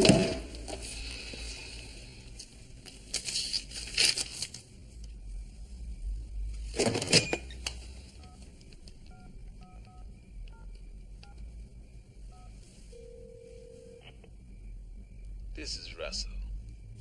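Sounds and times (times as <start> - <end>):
paper rustling: 2.9 - 4.7.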